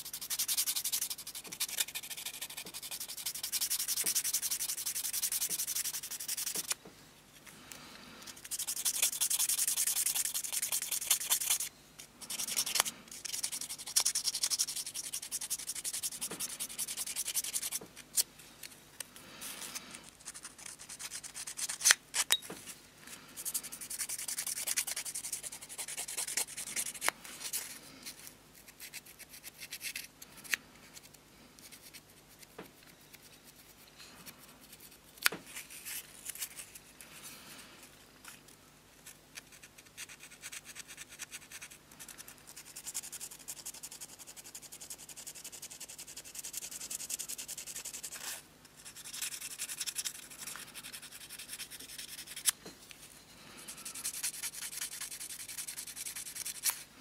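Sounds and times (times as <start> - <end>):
abrasive stick sanding metal: 0.0 - 6.8, 8.4 - 11.7.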